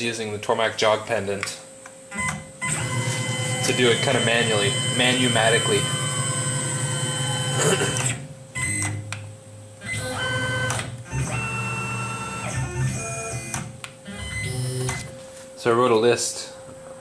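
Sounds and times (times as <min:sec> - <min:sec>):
mill motors whining: 0:02.1 - 0:15.2.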